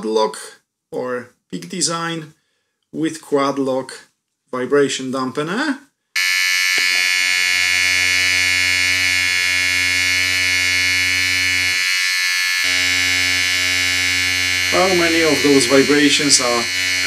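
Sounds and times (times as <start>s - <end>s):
electric motor buzzing: 6.2s - 17.0s.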